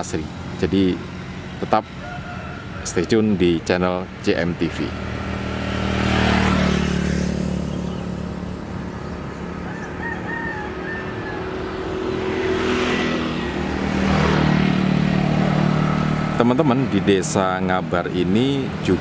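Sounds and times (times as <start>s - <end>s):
vehicles passing on road: 0.0s - 19.0s
rooster crowing: 1.9s - 3.2s, 9.5s - 12.6s.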